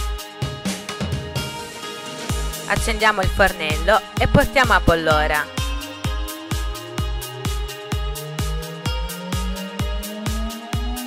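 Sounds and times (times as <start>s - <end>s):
electronic dance music: 0.0s - 11.0s
kick drum beat: 2.3s - 11.0s
rising synth note: 5.6s - 11.0s.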